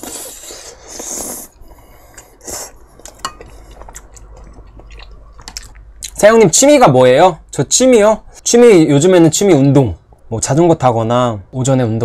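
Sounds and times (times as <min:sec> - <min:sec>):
chewing: 0:00.0 - 0:06.2.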